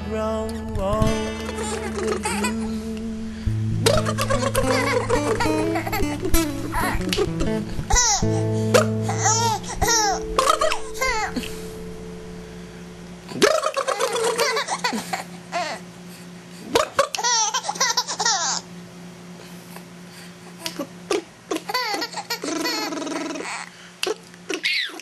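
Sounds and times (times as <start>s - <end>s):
faint steady hum: 0.0s - 25.0s
baby laughing: 1.6s - 2.8s, 3.8s - 11.5s, 13.4s - 15.8s, 16.8s - 18.7s, 20.6s - 25.0s.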